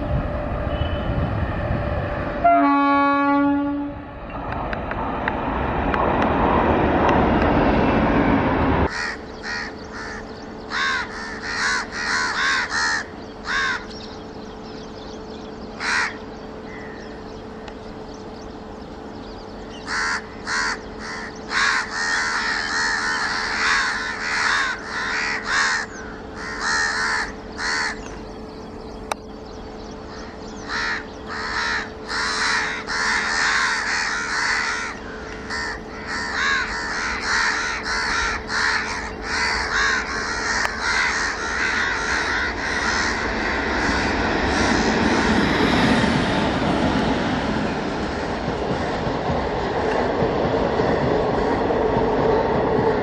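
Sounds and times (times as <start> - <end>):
train horn: 0.0 - 4.2
distant train approaching: 0.0 - 53.0
electric trains passing: 0.0 - 53.0
steady hum: 6.6 - 53.0
crows cawing: 8.9 - 14.0, 15.8 - 17.2, 19.8 - 28.1, 30.1 - 45.6, 48.0 - 49.2, 51.3 - 51.7.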